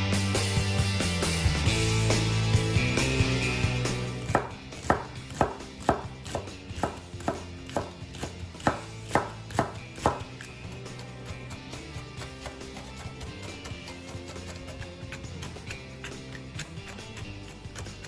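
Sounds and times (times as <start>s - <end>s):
cleaver chopping on plastic board: 4.3s - 18.0s.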